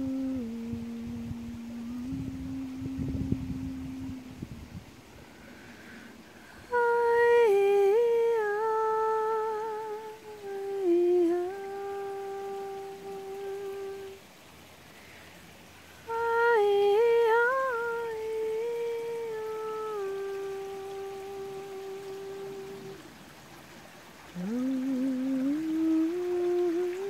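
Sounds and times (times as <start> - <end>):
person humming slow melody: 0.0 - 14.4, 16.0 - 23.2, 24.2 - 27.0.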